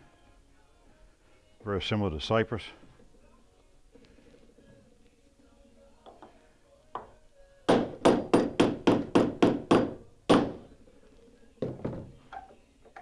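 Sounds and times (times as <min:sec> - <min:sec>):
hammer driving nail into wood: 0:07.7 - 0:10.6.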